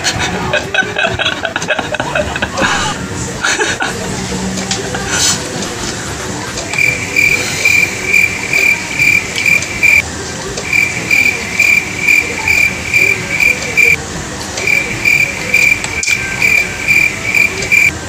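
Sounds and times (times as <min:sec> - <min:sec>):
background hiss: 0:06.7 - 0:10.0
insect chirping: 0:06.8 - 0:10.0, 0:10.7 - 0:14.0, 0:14.6 - 0:17.9.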